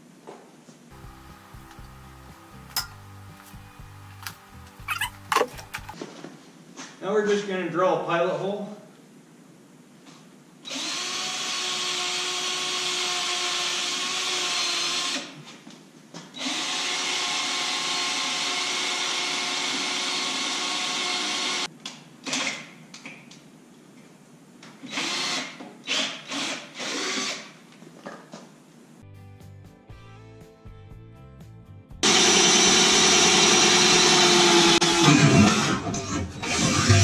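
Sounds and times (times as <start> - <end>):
power drill whining: 10.7 - 15.3, 16.4 - 21.7, 24.9 - 27.5, 32.0 - 37.0.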